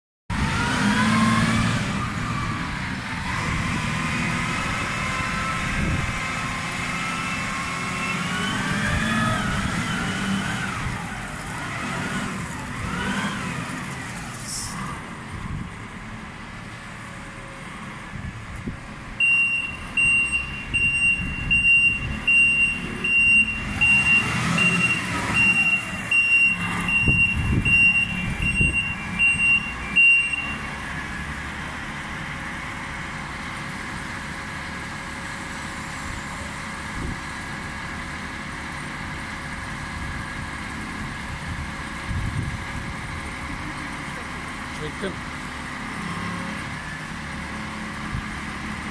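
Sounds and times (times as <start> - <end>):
diesel forklift engine whining: 0.3 - 48.9
reversing alarm beeping: 19.2 - 30.9.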